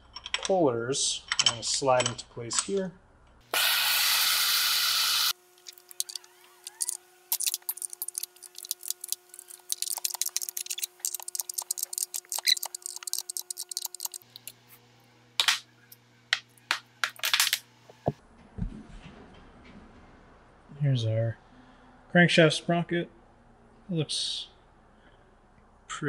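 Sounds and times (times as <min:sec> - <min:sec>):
pneumatic air ratchet running: 0:09.8 - 0:14.2.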